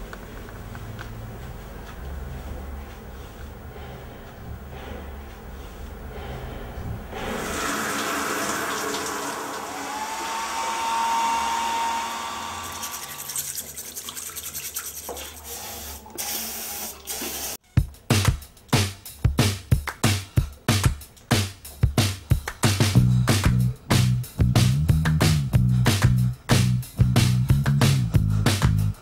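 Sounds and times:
music with strong drum beat: 0:17.6 - 0:29.0.

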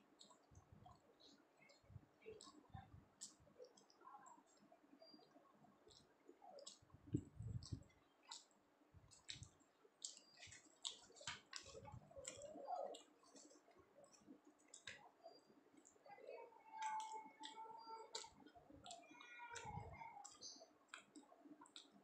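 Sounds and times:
chewing mouth sounds: 0:05.9 - 0:16.0.

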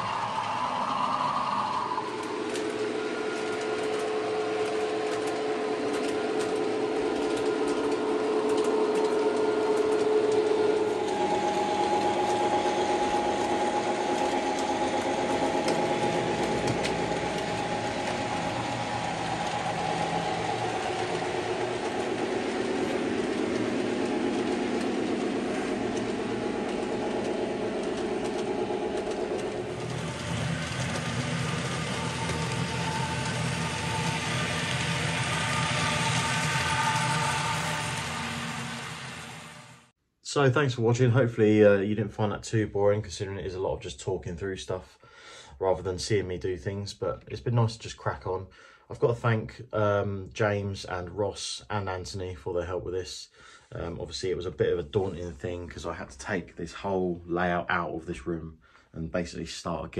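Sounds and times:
model train motors whining: 0:00.0 - 0:39.9.

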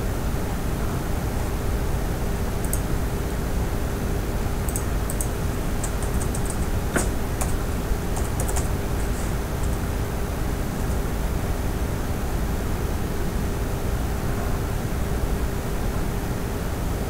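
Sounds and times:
faint hum: 0:00.0 - 0:17.0
keyboard typing: 0:02.6 - 0:02.9, 0:04.6 - 0:09.9.

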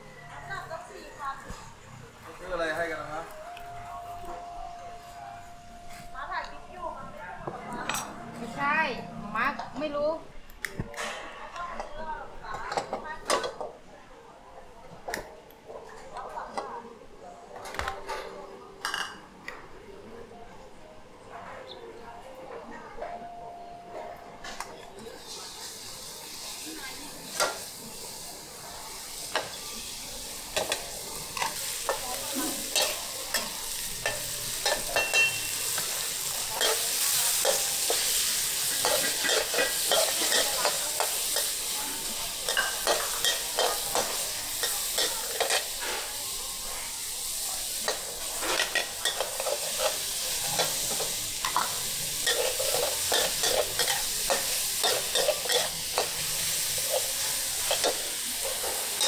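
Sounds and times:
food sizzling in a wok: 0:25.0 - 0:59.0.

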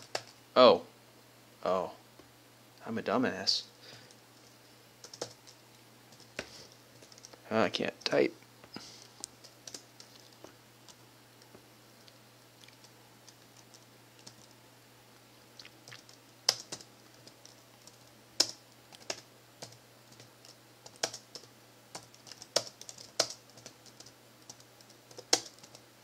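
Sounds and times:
laptop keyboard typing: 0:00.0 - 0:00.4, 0:04.0 - 0:07.4, 0:09.3 - 0:11.0, 0:12.8 - 0:14.6, 0:15.8 - 0:25.9.

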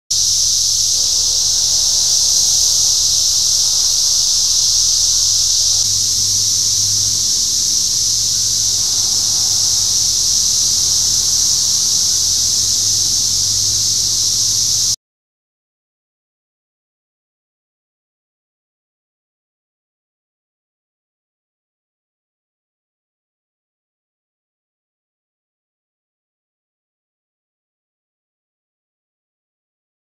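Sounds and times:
cicadas droning: 0:00.1 - 0:15.0.

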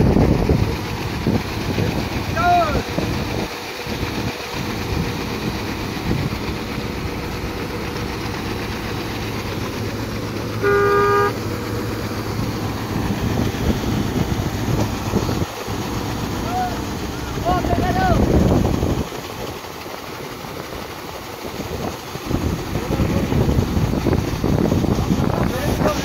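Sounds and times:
combine harvester engine running: 0:00.0 - 0:26.0
vehicle horn: 0:10.6 - 0:11.4.

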